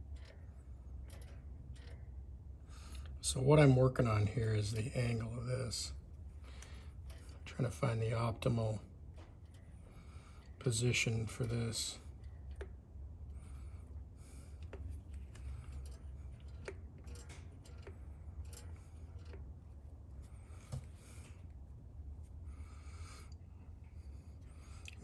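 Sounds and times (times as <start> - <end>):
metal linkage clicking and rubbing: 0.0 - 5.4, 6.5 - 8.6, 9.2 - 21.2
steady low hum: 0.0 - 25.0.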